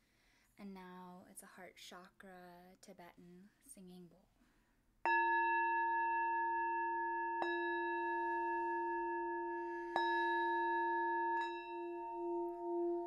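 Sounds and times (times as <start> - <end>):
singing bowl struck with mallet: 5.1 - 13.0.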